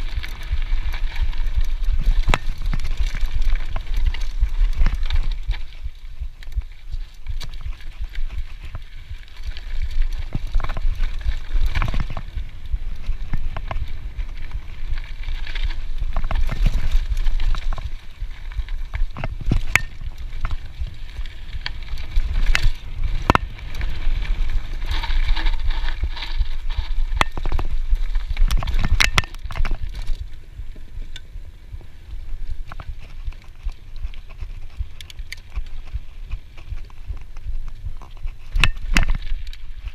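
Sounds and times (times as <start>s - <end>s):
bike frame knocks and rattles: 0.0s - 30.2s
tyre and trail rumble: 0.0s - 39.9s
wind on camera: 0.0s - 39.9s.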